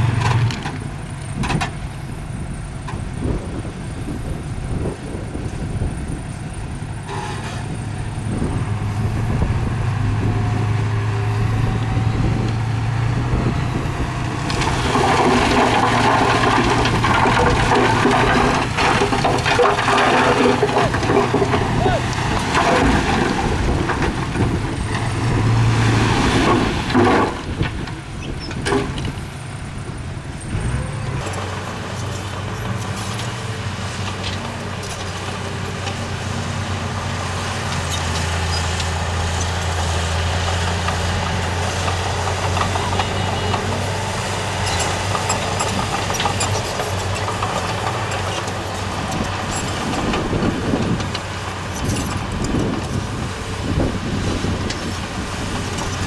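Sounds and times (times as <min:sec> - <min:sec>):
heavy diesel engine running: 0:00.0 - 0:56.0
rattling and clatter: 0:14.2 - 0:25.6, 0:44.6 - 0:56.0.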